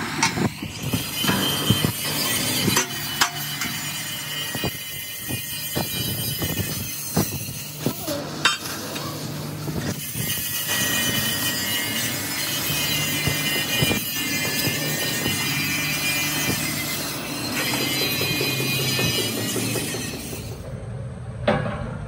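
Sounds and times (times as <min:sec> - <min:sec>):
metal knocks and clanks: 0:00.1 - 0:04.8, 0:12.0 - 0:20.7.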